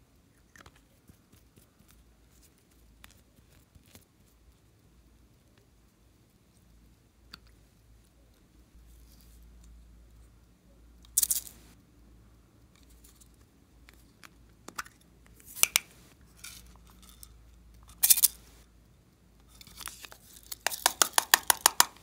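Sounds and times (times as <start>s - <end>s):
plastic beads rattling and clicking: 11.0s - 11.7s, 19.5s - 22.0s.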